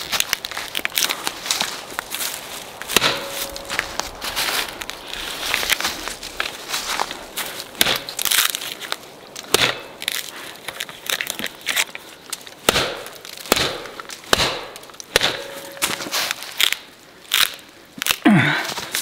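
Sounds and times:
axe chopping into wood: 0:02.9 - 0:03.8, 0:07.8 - 0:08.2, 0:09.5 - 0:10.0, 0:12.6 - 0:16.2.

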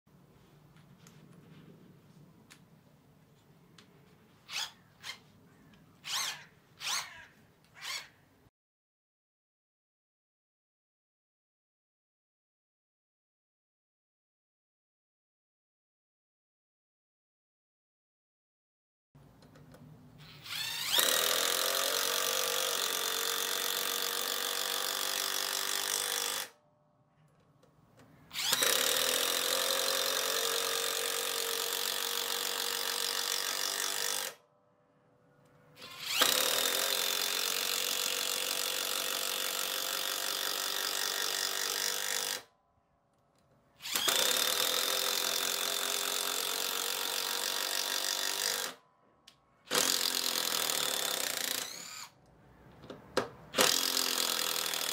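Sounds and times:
impact driver driving screws: 0:43.8 - 0:48.8, 0:49.7 - 0:52.1, 0:53.5 - 0:54.9.

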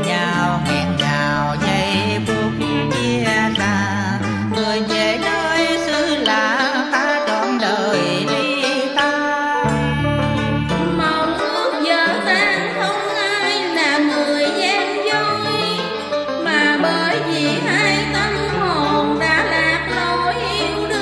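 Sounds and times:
traditional-style melody with bending notes: 0:00.0 - 0:21.0
steady bass line: 0:09.6 - 0:11.4.

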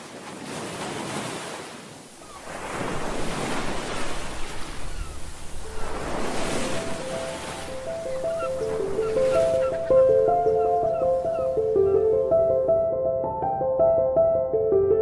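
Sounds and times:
ocean waves washing in: 0:00.0 - 0:12.7
soft sustained music notes: 0:05.8 - 0:15.0.

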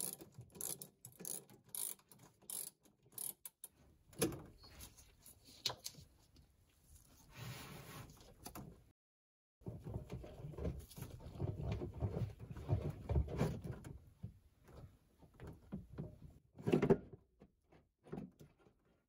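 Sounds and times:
metal scraping and knocking on plastic: 0:09.6 - 0:19.0.

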